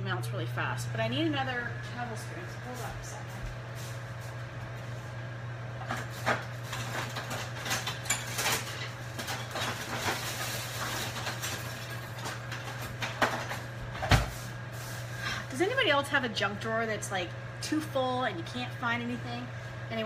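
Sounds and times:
steady low hum: 0.0 - 20.0
utensils clattering in drawer: 5.9 - 13.6.

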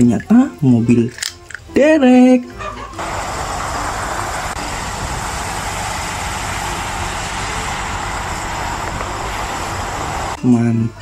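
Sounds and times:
water running in a stream: 3.0 - 10.4.

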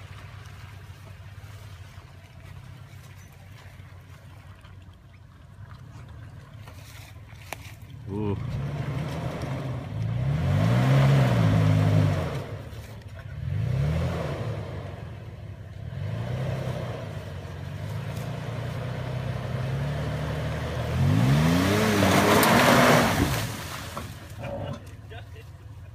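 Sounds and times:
engine revving under load: 8.1 - 24.9
tyres spinning in mud: 17.2 - 25.9.

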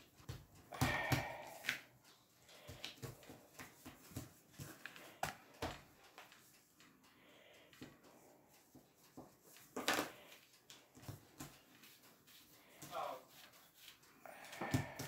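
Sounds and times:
hands patting dough: 0.0 - 7.0, 7.7 - 15.0.

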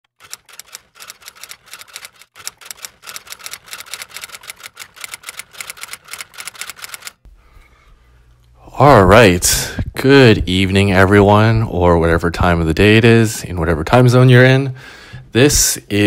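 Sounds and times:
rapid typing clicks: 0.1 - 7.2.

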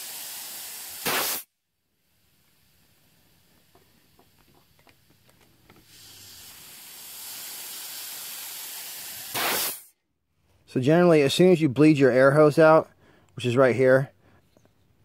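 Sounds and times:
high-pressure air hissing: 0.0 - 9.9.

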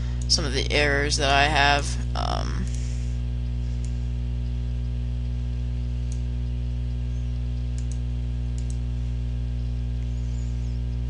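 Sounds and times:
low electrical hum: 0.0 - 11.0
computer mouse clicks: 7.7 - 8.0, 8.6 - 8.8.

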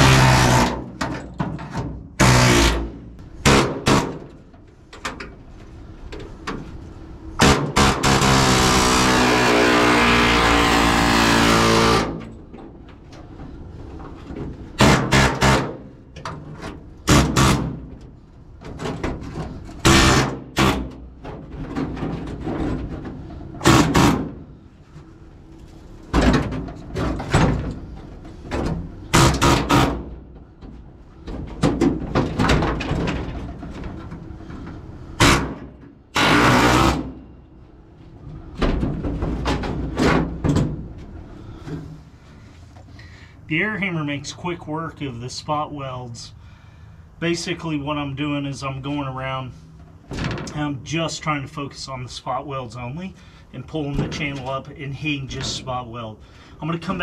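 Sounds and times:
pneumatic air hammer: 0.0 - 4.4, 7.4 - 12.4, 14.7 - 16.0, 17.0 - 18.0, 19.6 - 21.0, 23.2 - 24.6, 29.0 - 30.2, 35.1 - 37.2.

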